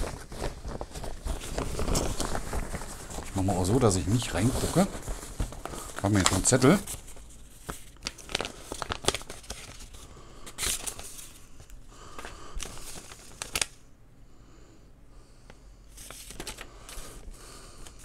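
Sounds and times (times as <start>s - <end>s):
paper rustling and crinkling: 0.0s - 13.8s, 15.9s - 18.0s.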